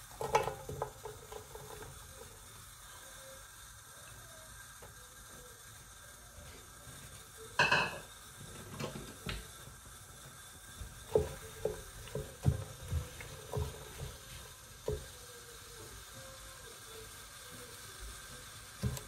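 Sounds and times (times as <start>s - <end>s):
metal cookware clanking: 0.1s - 2.0s, 7.6s - 8.1s.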